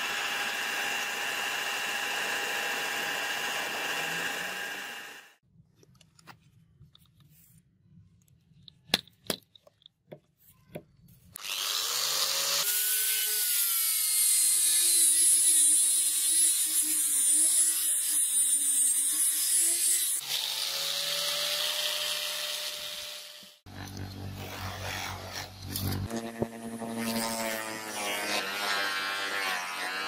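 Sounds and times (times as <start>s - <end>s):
angle grinder sanding metal blade: 11.5s - 30.0s.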